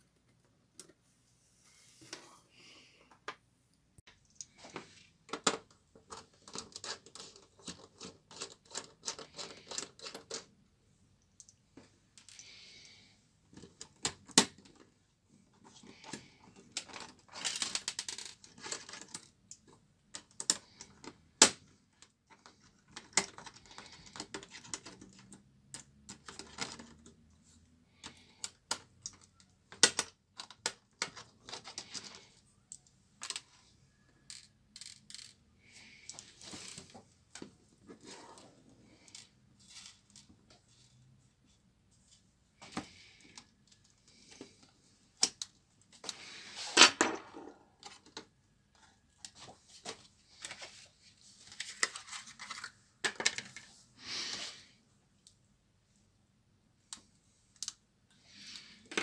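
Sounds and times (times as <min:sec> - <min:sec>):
plastic and metal parts clicking: 0:04.2 - 0:10.5, 0:15.6 - 0:27.2, 0:34.2 - 0:35.4.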